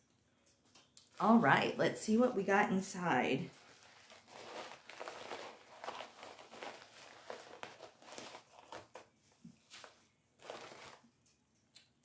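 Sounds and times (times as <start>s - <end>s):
packaging crinkling and rustling: 3.5s - 11.4s.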